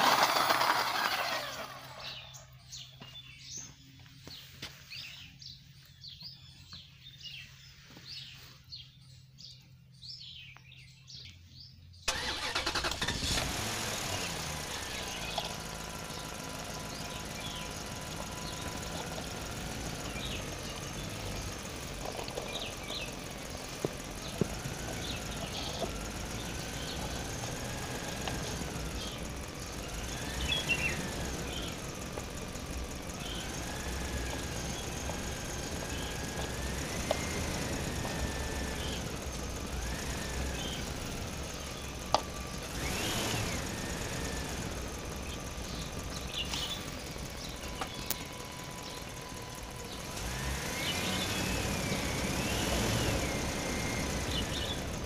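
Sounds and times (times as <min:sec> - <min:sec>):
birds chirping: 0:00.0 - 0:55.0
engine-like drone with whine: 0:00.0 - 0:55.0
sharp clicks: 0:45.3 - 0:48.4.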